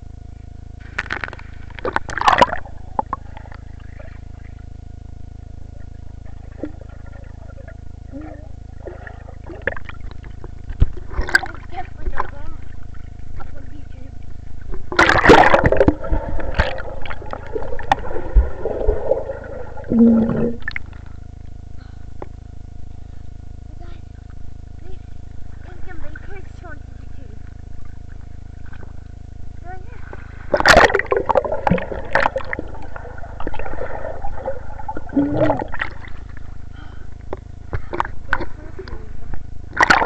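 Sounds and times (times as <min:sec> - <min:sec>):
underwater gurgling bubbles: 0:01.4 - 0:04.7, 0:05.7 - 0:21.2, 0:30.0 - 0:40.0
muffled pitched sound: 0:02.2 - 0:21.0
underwater vocal sound: 0:15.0 - 0:21.0, 0:30.6 - 0:37.2.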